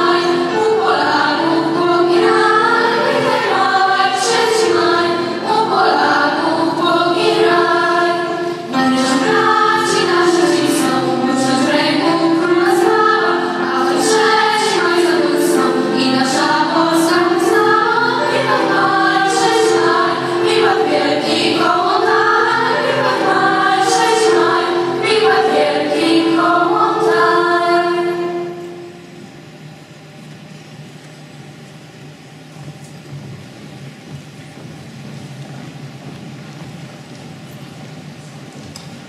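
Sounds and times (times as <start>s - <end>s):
girls' choir singing: 0.0s - 29.1s.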